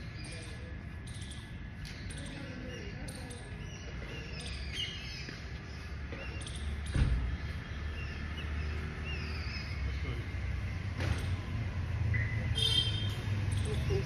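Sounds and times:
small birds chirping: 0:00.0 - 0:14.0
thump: 0:06.8 - 0:07.4.

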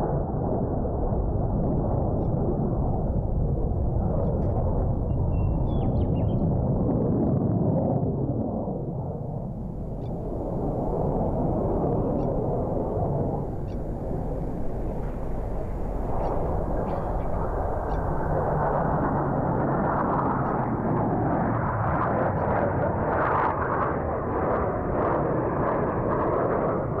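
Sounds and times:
jet aircraft roar: 0:00.0 - 0:27.0.

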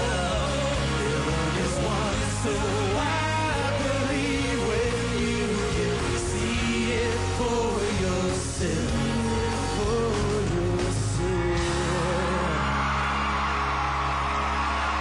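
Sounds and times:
man singing over rock band: 0:00.0 - 0:13.1
audience cheering: 0:11.2 - 0:15.0.

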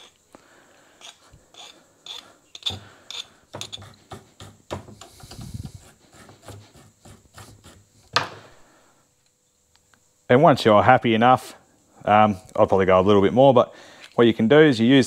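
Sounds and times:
hand file scraping steel: 0:01.0 - 0:07.9.

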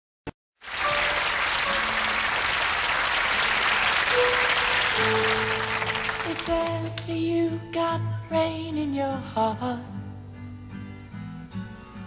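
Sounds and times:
audience applauding: 0:00.6 - 0:07.1
instrument notes: 0:00.7 - 0:06.6.

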